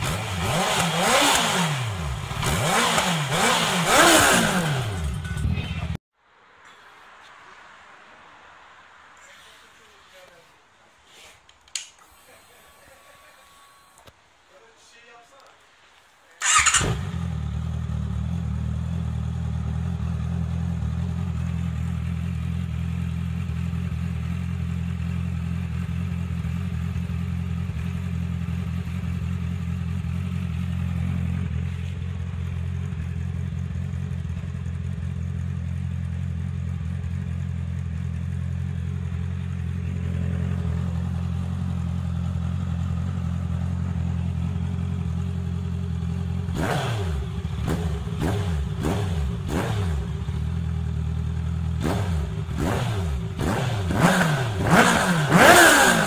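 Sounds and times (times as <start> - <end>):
motorcycle engine idling: 16.4 - 56.0.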